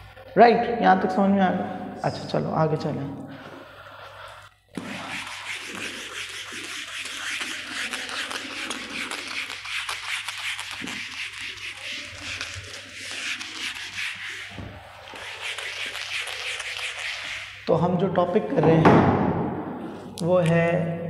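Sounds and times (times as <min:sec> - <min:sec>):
scratching on writing surface: 0:03.5 - 0:17.7.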